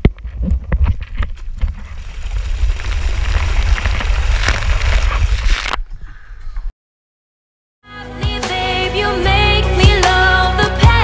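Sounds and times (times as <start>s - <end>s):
sliding on wet vinyl: 0.4s - 5.8s.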